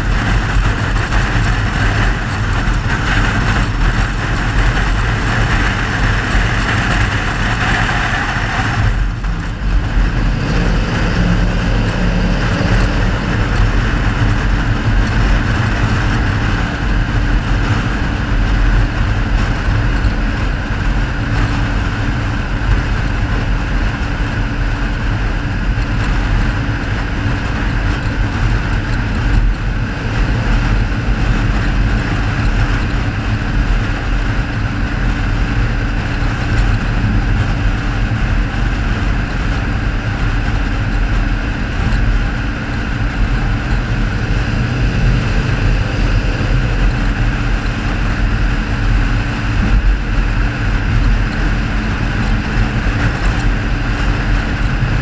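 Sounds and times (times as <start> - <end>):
car engine: 0.0 - 55.0
wind noise: 0.0 - 55.0.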